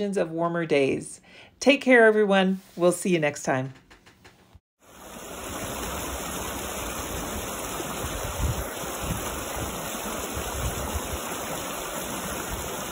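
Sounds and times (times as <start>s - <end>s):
creek water rushing over rocks: 4.8s - 12.9s.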